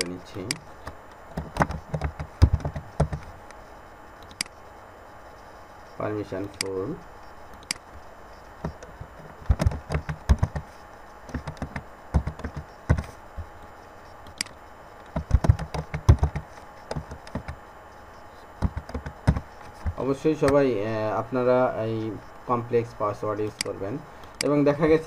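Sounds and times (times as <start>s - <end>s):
keyboard typing clicks: 4.2s - 4.6s, 14.3s - 17.6s.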